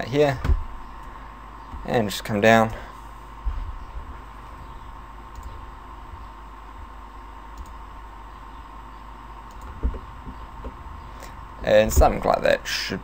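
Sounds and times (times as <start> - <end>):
steady hiss: 0.0 - 13.0
thin constant hum: 0.0 - 13.0
computer mouse clicks: 5.3 - 5.6, 7.5 - 7.8, 9.5 - 10.4.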